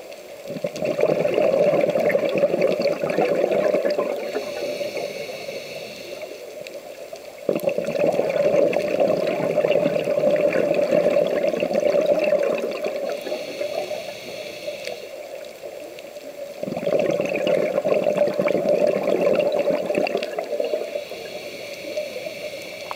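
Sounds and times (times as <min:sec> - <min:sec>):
exhaust bubbling underwater: 0:00.5 - 0:05.4, 0:07.4 - 0:15.8, 0:16.5 - 0:22.9
regulator inhale hiss: 0:04.0 - 0:06.8, 0:12.9 - 0:15.5, 0:20.2 - 0:22.9.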